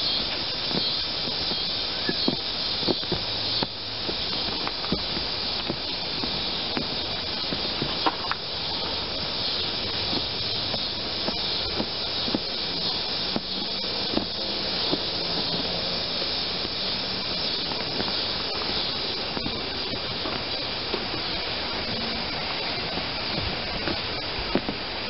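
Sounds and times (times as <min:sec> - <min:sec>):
steady high hiss: 0:00.0 - 0:25.0
hands tapping and rubbing padding: 0:00.7 - 0:09.0, 0:09.8 - 0:15.8, 0:21.8 - 0:24.9.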